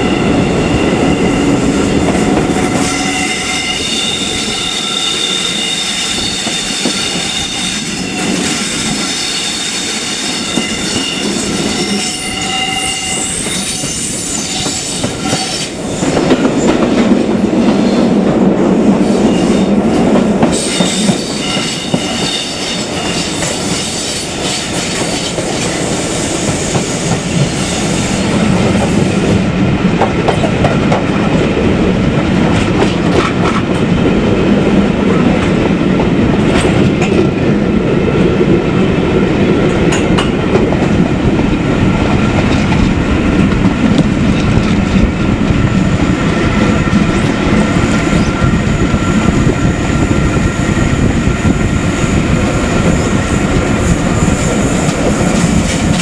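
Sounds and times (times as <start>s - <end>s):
train wheels squealing: 0.0s - 15.8s, 20.5s - 25.3s
train wheels rumbling on track: 0.0s - 56.0s.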